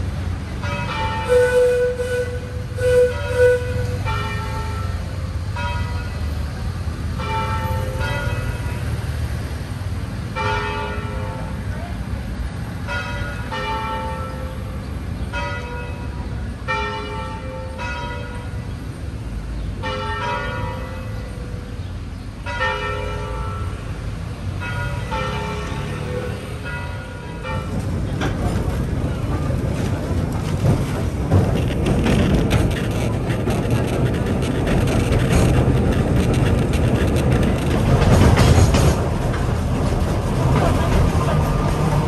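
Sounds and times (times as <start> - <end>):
low rumble of street traffic: 0.0 - 42.0
church bells ringing: 0.6 - 1.3, 5.6 - 6.2, 7.2 - 8.9, 10.4 - 11.5, 12.9 - 14.7, 15.3 - 18.6, 19.8 - 21.5, 22.4 - 23.8, 24.6 - 25.8, 26.6 - 27.8.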